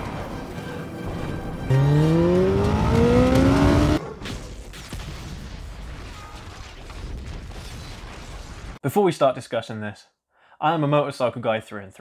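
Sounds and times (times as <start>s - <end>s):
motorcycle engine revving: 1.7s - 4.0s.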